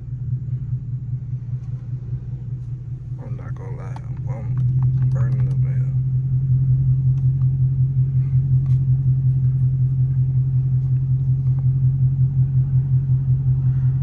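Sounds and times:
car engine idling: 0.0s - 14.0s.

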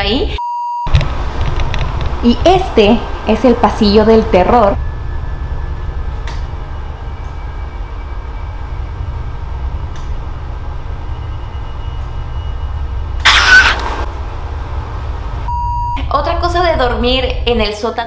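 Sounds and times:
deep rumble: 0.9s - 17.7s
loud shrill burst: 13.1s - 14.1s.

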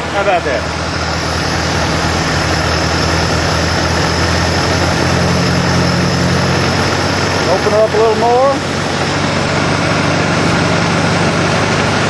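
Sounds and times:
tractor engine running: 0.0s - 12.0s.

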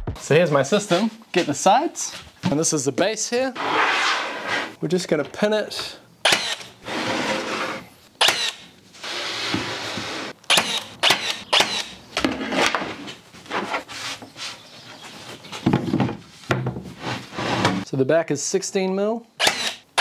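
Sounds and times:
pin nailer shots: 6.2s - 6.8s, 8.2s - 8.6s, 10.5s - 12.0s, 19.4s - 20.0s.

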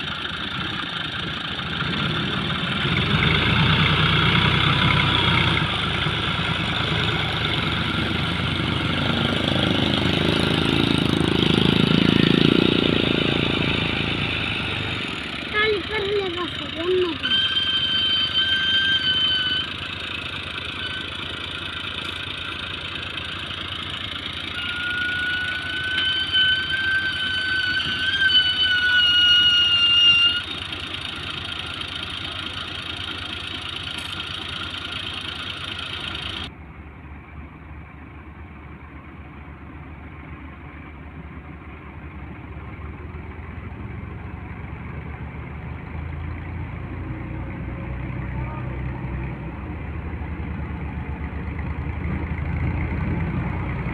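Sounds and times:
tractor engines labouring: 0.0s - 53.9s
high-pitched wavering squeal: 16.6s - 21.6s, 24.4s - 30.8s.

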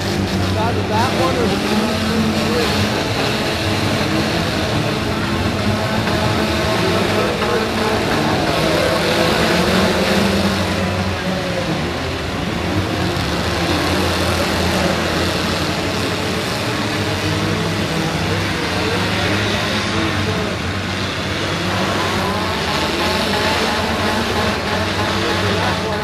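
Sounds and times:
car engines running and revving: 0.0s - 26.0s.

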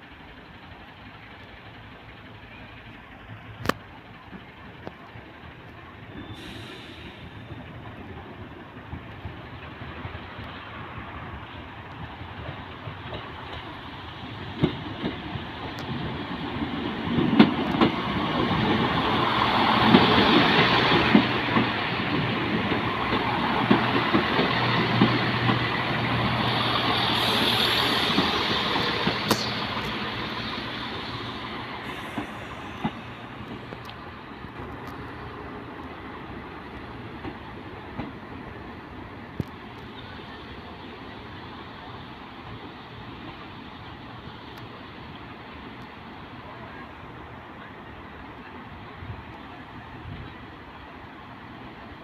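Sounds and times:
train engine hum: 0.0s - 52.0s.

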